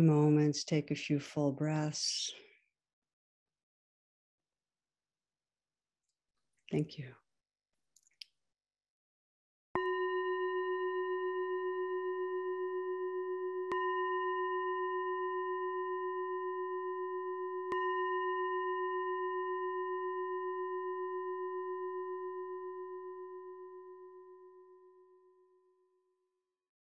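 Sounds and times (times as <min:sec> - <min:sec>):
singing bowl ringing: 0:09.8 - 0:25.6.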